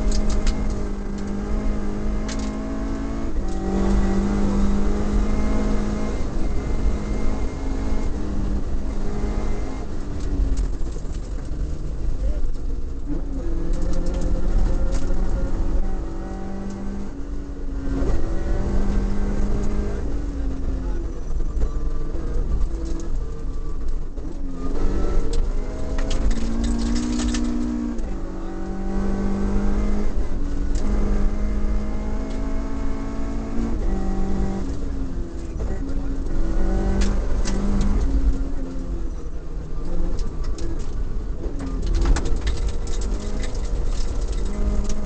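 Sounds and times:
car engine revving hard: 0.0s - 10.9s, 13.4s - 20.8s, 24.5s - 38.9s, 42.3s - 45.0s
gravel road noise rumble: 0.0s - 45.0s.

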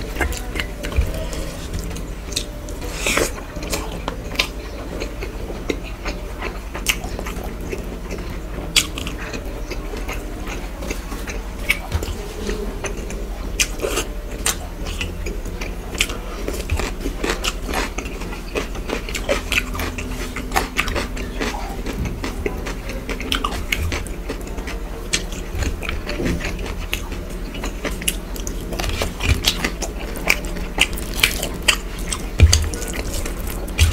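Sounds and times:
steady low hum: 0.0s - 33.9s
chewing and mouth smacks: 0.1s - 33.9s.

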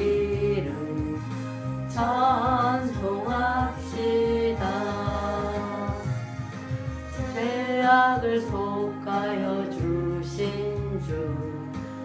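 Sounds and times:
hymn accompaniment music: 0.0s - 12.0s.

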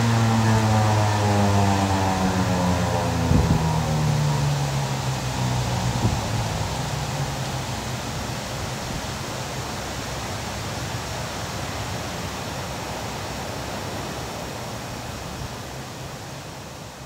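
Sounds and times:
wind buffeting microphone: 2.9s - 4.2s, 5.6s - 7.9s.

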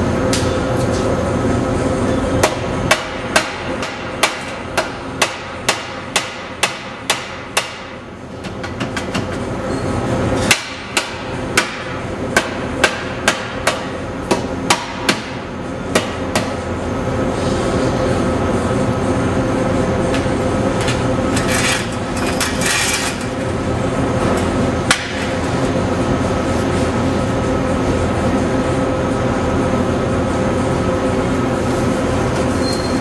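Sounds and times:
hammer striking steel exhaust pipe: 2.4s - 9.4s, 10.4s - 16.7s, 24.8s - 25.3s.

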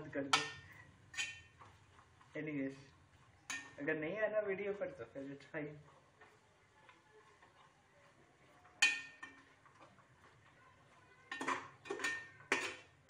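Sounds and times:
spatula scraping pot: 0.2s - 3.8s, 5.0s - 13.0s
spatula clinking against pot: 0.3s - 2.0s, 3.4s - 3.8s, 8.7s - 10.6s, 11.3s - 13.0s.

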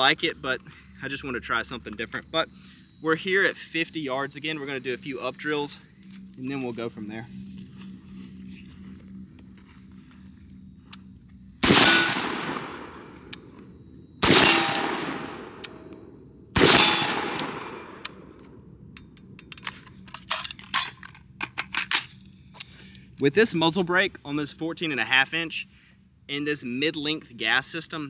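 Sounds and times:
rifle shots with echo: 11.6s - 13.1s, 14.2s - 15.6s, 16.6s - 18.0s.

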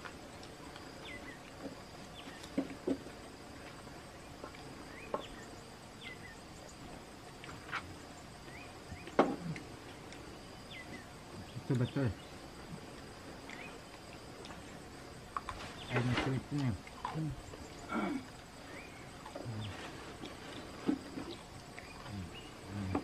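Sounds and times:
insect drone: 0.0s - 23.0s
people eating with smacking sounds: 0.0s - 23.0s.

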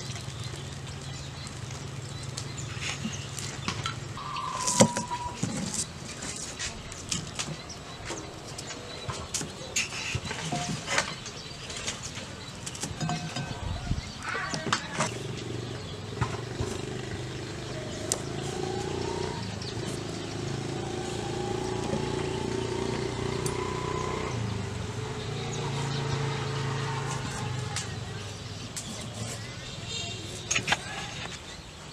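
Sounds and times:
small engine running: 15.1s - 28.2s.

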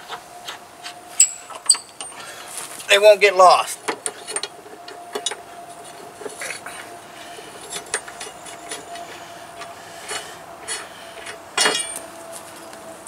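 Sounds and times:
faint steady hum: 0.0s - 13.0s
light metallic clicks and scrapes: 3.8s - 12.8s.

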